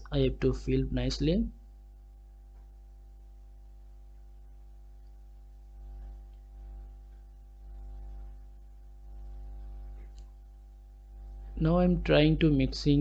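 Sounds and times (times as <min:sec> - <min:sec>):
steady electrical hum: 0:00.0 - 0:13.0.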